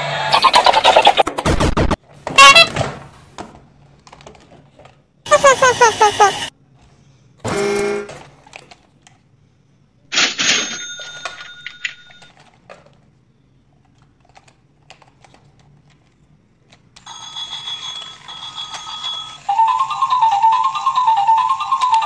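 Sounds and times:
toy electronic sound effects: 0:02.4 - 0:02.7, 0:05.3 - 0:06.5, 0:17.1 - 0:22.0
jumpy electronic tune: 0:05.3 - 0:06.5
electronic ringing: 0:10.7 - 0:12.3.

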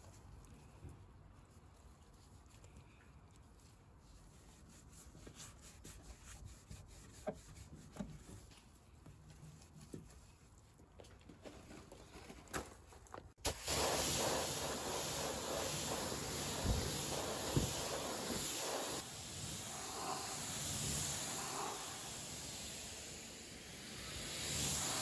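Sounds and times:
pressure washer spraying: 0:13.4 - 0:25.0.

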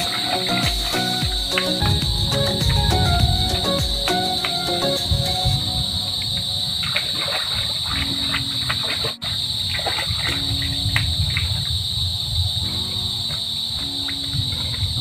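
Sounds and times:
high-pitched insect drone: 0:00.0 - 0:15.0
water sloshing from wading: 0:06.7 - 0:11.6.

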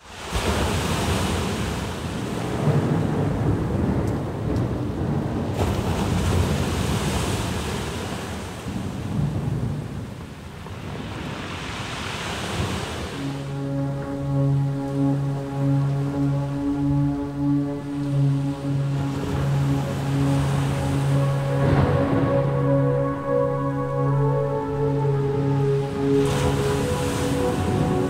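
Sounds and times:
waves breaking on beach: 0:00.0 - 0:03.2, 0:05.5 - 0:09.7, 0:10.5 - 0:13.8.

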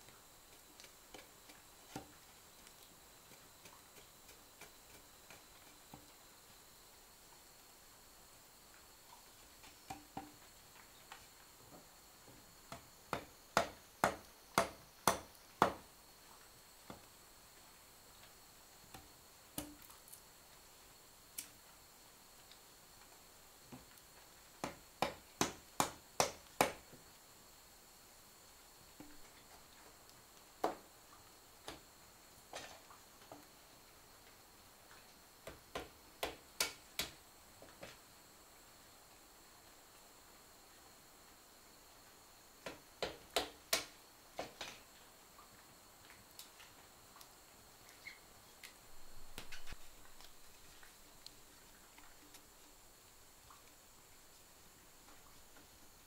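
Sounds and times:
blade chopping into wood: 0:12.7 - 0:15.8.

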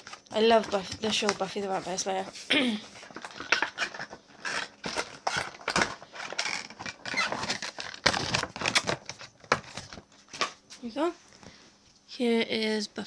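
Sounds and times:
cardboard box clicks and rustles: 0:03.2 - 0:10.5.

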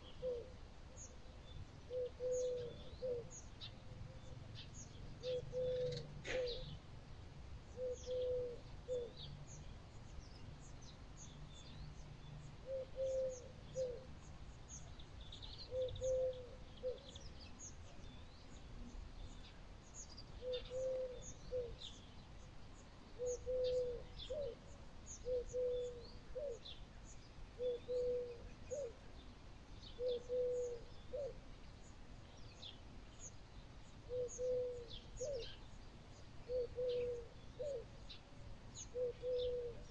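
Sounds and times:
dove cooing: 0:00.0 - 0:00.6, 0:01.9 - 0:03.4, 0:05.2 - 0:06.7, 0:07.8 - 0:09.3, 0:12.6 - 0:14.1, 0:15.7 - 0:17.2, 0:20.4 - 0:21.8, 0:23.2 - 0:26.7, 0:27.6 - 0:29.0, 0:30.0 - 0:31.4, 0:34.1 - 0:35.6, 0:36.5 - 0:38.0, 0:38.8 - 0:39.9
small birds chirping: 0:00.0 - 0:39.9.

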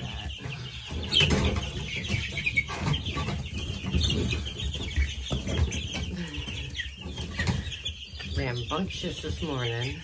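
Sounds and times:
chicks and ducklings peeping: 0:00.0 - 0:10.0.

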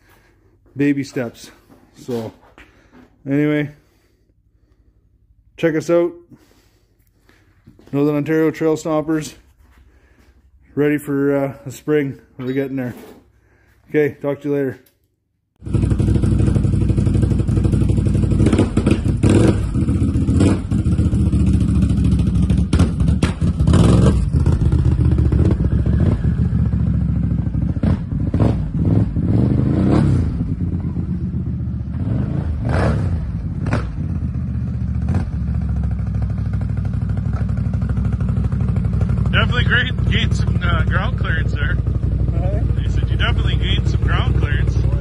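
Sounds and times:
quad bike engine running: 0:15.6 - 0:45.0.

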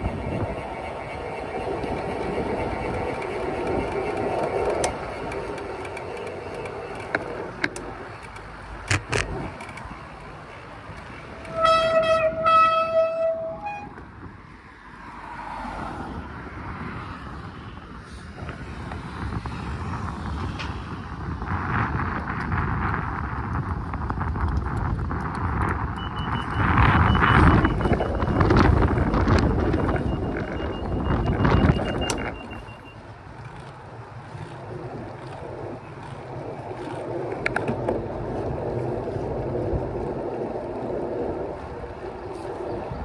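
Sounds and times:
wind-like rumble: 0:00.0 - 0:43.0
sharp clicks: 0:03.9 - 0:10.3
horn toots: 0:11.4 - 0:14.0.

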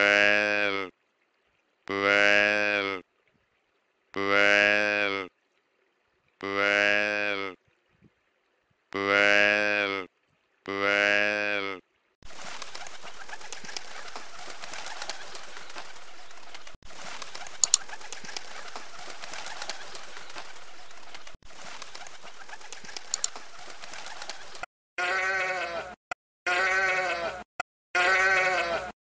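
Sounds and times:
sharp clicks: 0:15.7 - 0:18.6, 0:22.7 - 0:24.5
sheep bleating: 0:25.0 - 0:27.4, 0:28.0 - 0:28.9.

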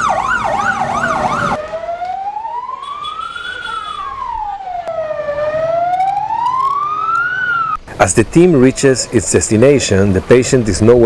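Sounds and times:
ambulance siren: 0:00.0 - 0:07.8.

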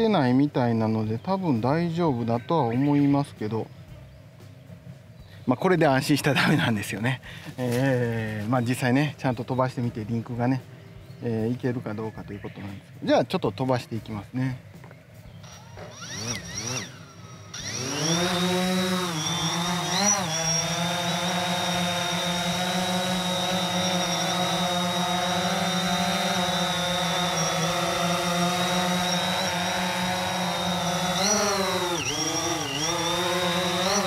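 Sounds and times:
drone propellers buzzing whine: 0:14.8 - 0:34.0.

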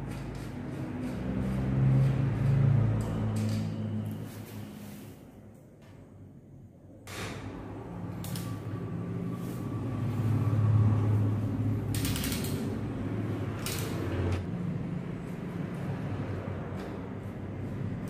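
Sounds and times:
metal clicking on derailleur: 0:11.9 - 0:12.8, 0:13.6 - 0:14.1
bicycle chain rattling: 0:11.9 - 0:12.9, 0:13.6 - 0:14.0.

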